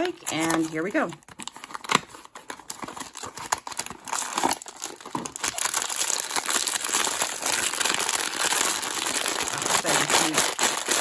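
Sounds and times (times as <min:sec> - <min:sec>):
foil pouch crinkling: 0:00.0 - 0:11.0.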